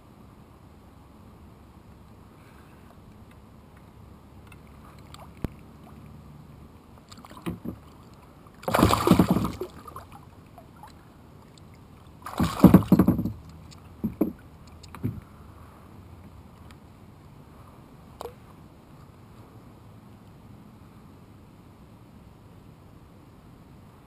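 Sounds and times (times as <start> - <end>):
fish splashing: 7.1 - 13.0.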